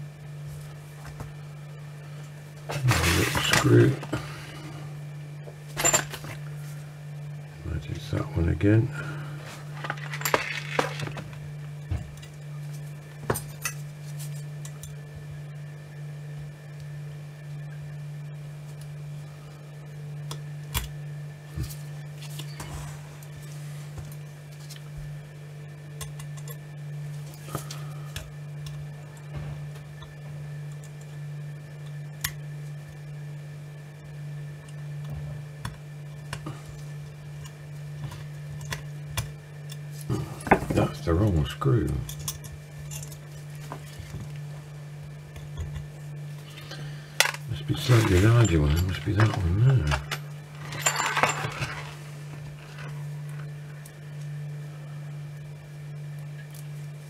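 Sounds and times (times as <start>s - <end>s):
small metal tools clinking: 47.2s - 52.0s.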